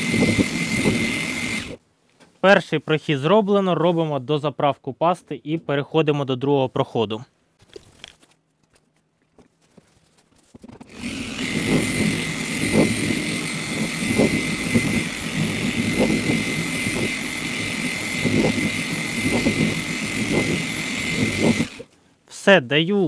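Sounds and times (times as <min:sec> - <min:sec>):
electric polisher motor whine: 0:00.0 - 0:01.8, 0:10.9 - 0:21.9.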